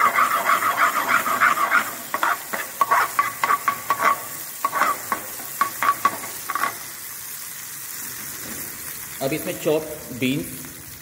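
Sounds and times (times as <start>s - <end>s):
ladle scraping and clinking on pan: 0.0s - 6.8s
oil sizzling: 0.0s - 11.0s.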